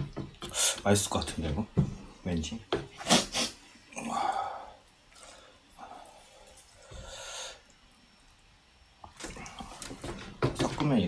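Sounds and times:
person blowing nose: 3.0 - 3.6
faint breaths: 3.9 - 7.8.

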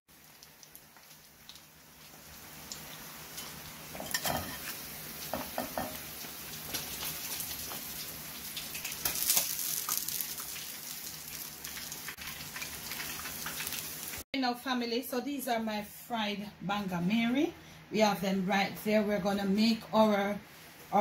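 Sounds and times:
fish sizzling in oil: 0.1 - 14.3.

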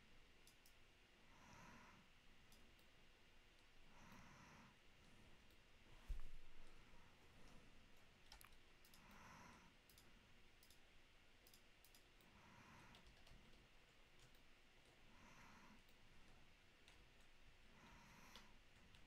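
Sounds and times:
computer mouse and keyboard clicks: 7.4 - 9.2, 9.8 - 15.0, 15.8 - 19.0.

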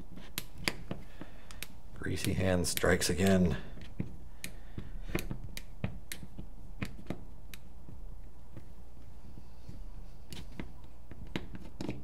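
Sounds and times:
screwdriver clicks and taps: 0.2 - 8.7, 10.3 - 12.0.

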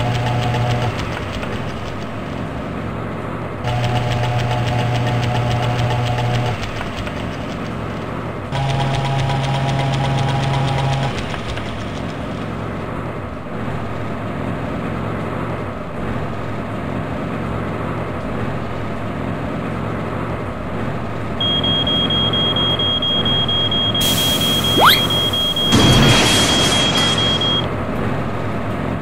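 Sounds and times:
high steady tone: 24.0 - 25.7
steady tone: 24.0 - 25.7.

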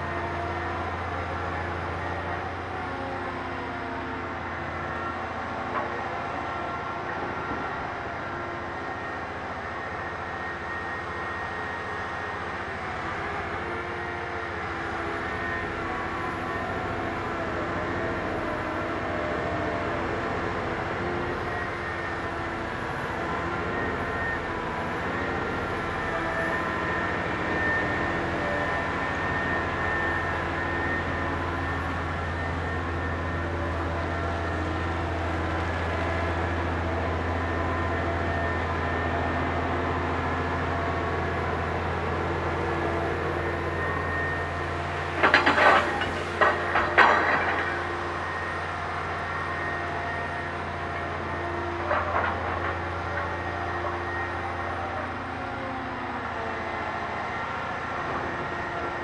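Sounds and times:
heavy machine drone: 0.0 - 59.0
faint high wavering whine: 18.2 - 52.0.

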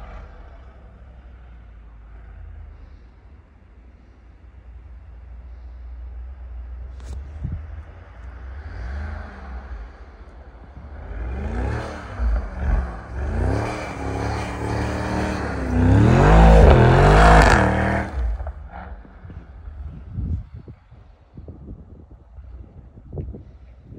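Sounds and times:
car engine revving: 7.8 - 20.1.

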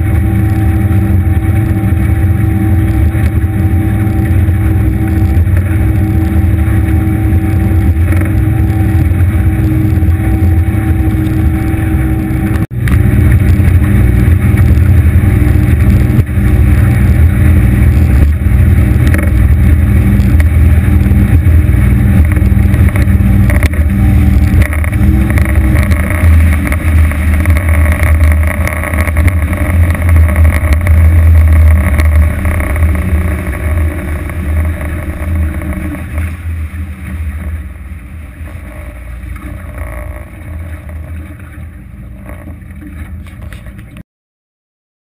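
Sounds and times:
outboard engine hum: 0.0 - 44.0
wind and water over hull: 0.0 - 44.0.

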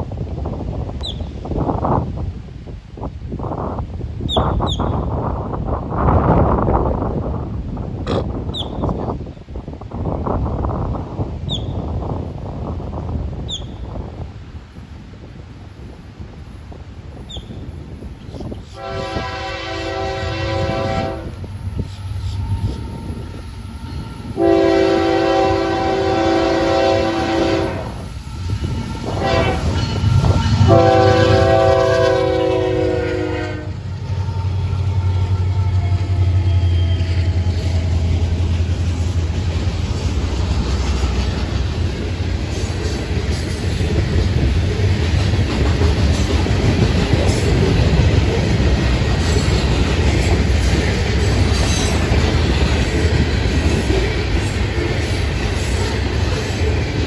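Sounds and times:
diesel locomotive engine rumble: 0.0 - 57.0
train air horn blasts: 18.7 - 38.1
train wheels clickety-clack: 33.9 - 57.0.

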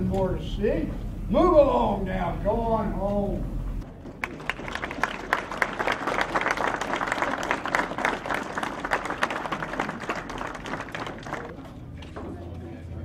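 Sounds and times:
audience applauding: 4.0 - 11.6.

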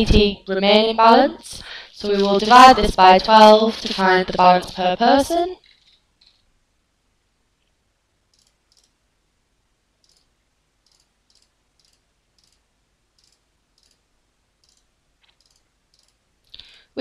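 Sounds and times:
faint computer mouse clicks: 8.3 - 9.0, 10.0 - 12.6, 13.2 - 14.0, 14.6 - 16.7.

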